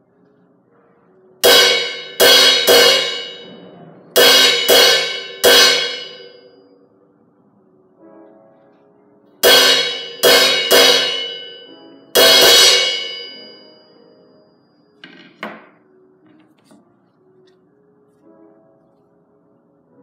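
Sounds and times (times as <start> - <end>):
cymbal struck with drumstick: 1.4 - 6.4, 9.4 - 13.8.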